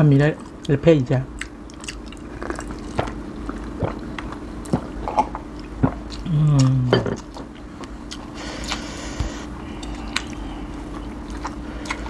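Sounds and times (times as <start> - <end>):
chewing and wet squishing: 0.1 - 12.0.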